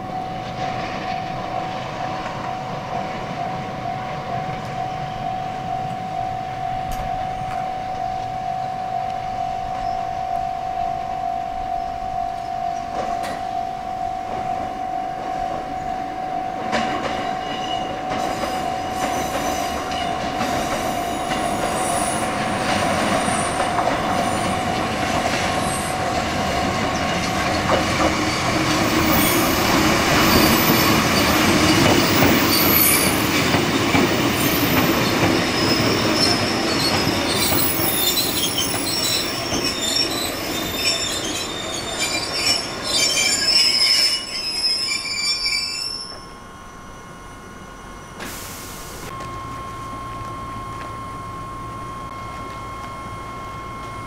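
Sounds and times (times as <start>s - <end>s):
electric train running on rails: 0.0s - 54.0s
high-pitched metallic squeals: 11.0s - 33.4s, 34.4s - 48.2s.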